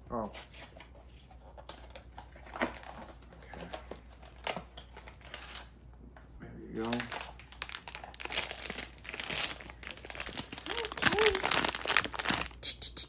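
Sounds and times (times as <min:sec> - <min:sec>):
plastic pouch crinkling: 0:06.8 - 0:12.6.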